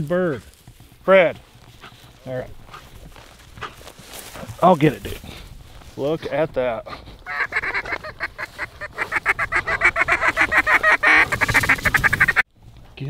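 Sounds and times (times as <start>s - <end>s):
duck calling: 7.2s - 12.4s.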